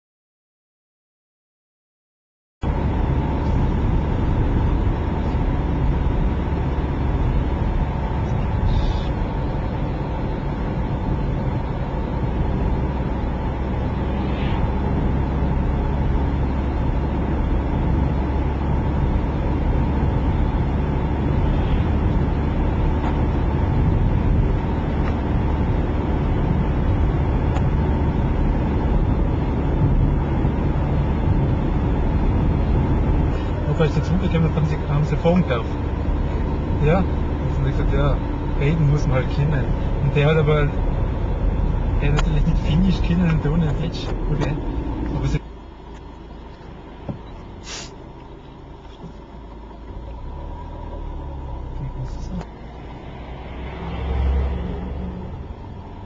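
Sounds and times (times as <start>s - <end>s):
car cabin engine and road rumble: 2.6s - 56.0s.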